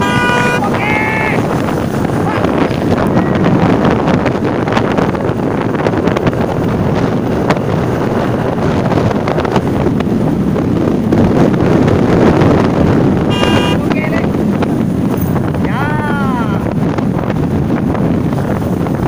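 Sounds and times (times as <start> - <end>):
motorcycle engine: 0.0 - 11.1, 12.6 - 15.5
road noise: 0.0 - 19.0
wind buffeting microphone: 0.0 - 19.0.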